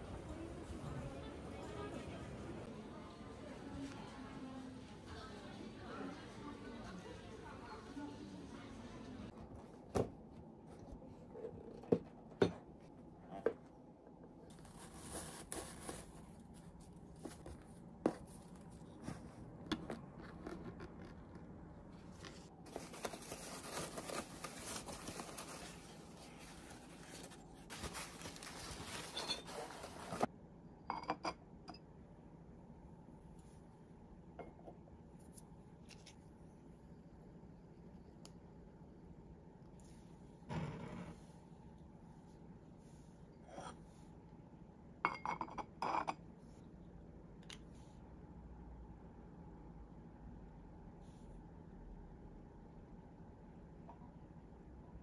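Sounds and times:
tissue paper rustling: 0:14.6 - 0:19.4, 0:22.1 - 0:30.3.

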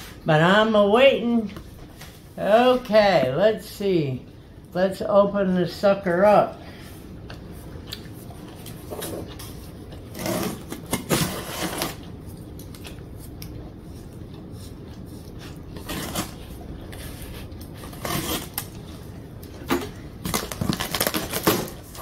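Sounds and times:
knife slicing packing tape: 0:10.1 - 0:12.0, 0:17.8 - 0:18.7.

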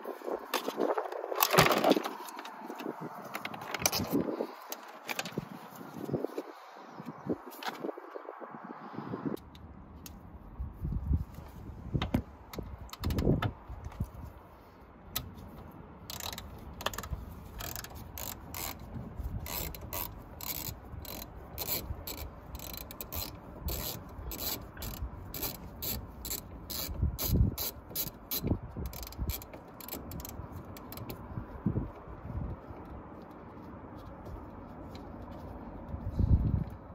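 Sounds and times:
hand ratchet clicking: 0:16.1 - 0:31.2.

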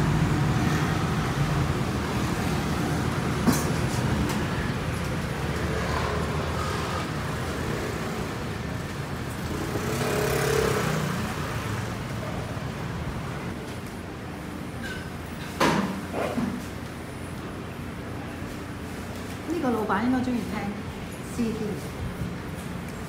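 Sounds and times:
vehicle passing close: 0:00.0 - 0:13.6
traffic engine rumble: 0:00.0 - 0:23.0.

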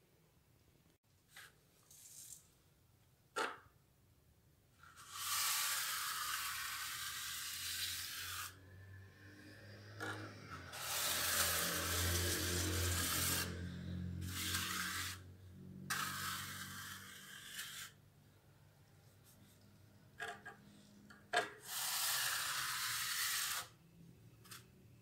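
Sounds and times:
float scraping wet plaster: 0:04.9 - 0:08.6, 0:09.9 - 0:13.6, 0:14.2 - 0:15.2, 0:15.9 - 0:18.0.

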